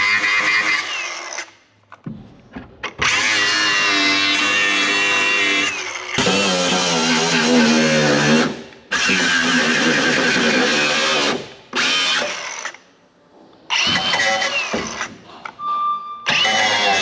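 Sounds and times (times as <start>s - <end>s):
angle grinder cutting metal: 16.3s - 17.0s.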